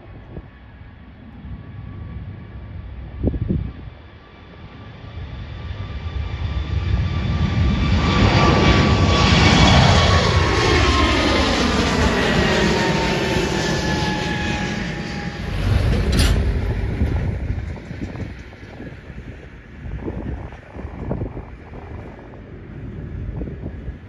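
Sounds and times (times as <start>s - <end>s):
jet airliner taking off: 0.0s - 24.0s
low rumble: 7.0s - 24.0s.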